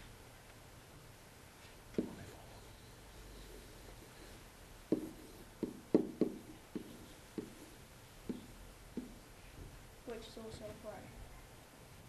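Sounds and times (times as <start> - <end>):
pen tapping on hard surface: 2.0 - 2.3, 4.9 - 7.6, 8.3 - 9.2.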